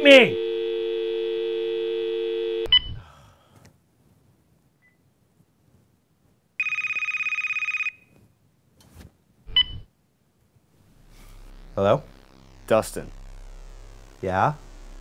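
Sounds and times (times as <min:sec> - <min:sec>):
two-note phone line tone: 0:00.0 - 0:02.7.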